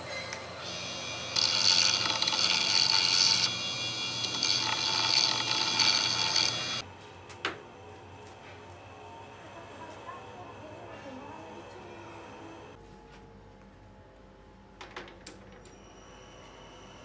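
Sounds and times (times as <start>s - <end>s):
grinder wheel screeching on steel: 0.0s - 6.8s
grinder motor hum: 0.6s - 6.8s.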